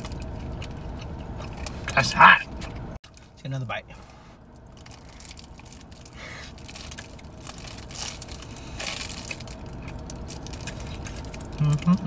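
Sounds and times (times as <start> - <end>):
person chewing food: 0.0 - 3.0
wrapper crinkling: 4.6 - 12.0.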